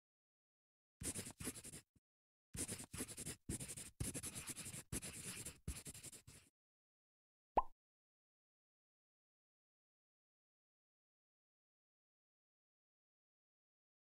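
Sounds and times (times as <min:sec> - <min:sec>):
marker scratching on paper: 0:01.0 - 0:01.9, 0:02.6 - 0:06.5.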